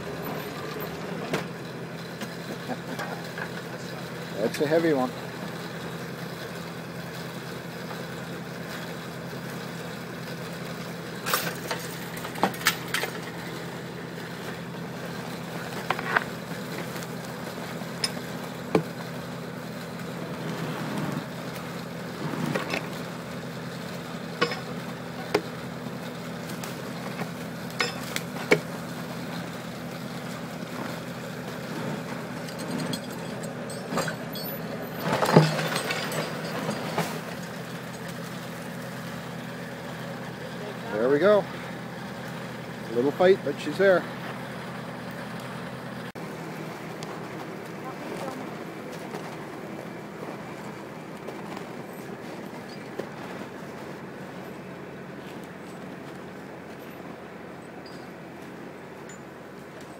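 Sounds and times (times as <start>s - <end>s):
tractor engine running: 0.0s - 59.9s
chain and tools clinking on log: 17.9s - 18.8s, 24.4s - 24.8s, 27.7s - 28.7s, 32.0s - 38.2s, 51.3s - 59.9s.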